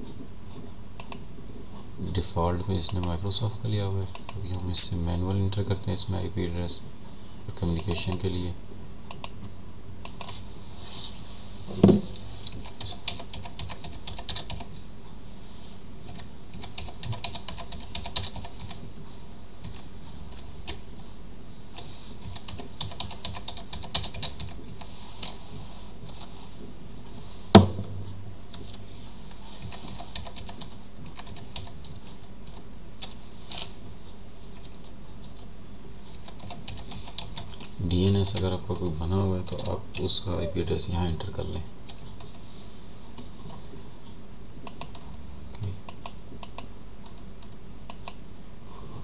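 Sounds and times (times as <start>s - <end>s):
faint hum: 0.0s - 49.0s
loud thumps: 11.7s - 12.2s, 27.5s - 28.1s
keyboard typing: 12.5s - 14.7s, 16.1s - 18.8s, 22.2s - 24.6s, 36.2s - 37.7s.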